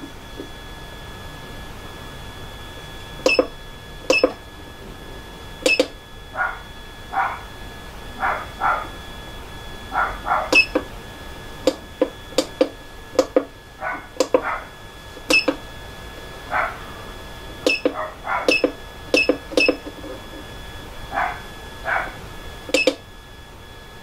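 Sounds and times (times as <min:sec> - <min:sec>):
faint electronic whine: 0:00.0 - 0:24.0
sharp beeping button clicks: 0:03.3 - 0:03.5, 0:04.1 - 0:04.4, 0:05.6 - 0:06.0, 0:10.5 - 0:10.9, 0:15.3 - 0:15.6, 0:17.7 - 0:19.9, 0:22.7 - 0:23.0.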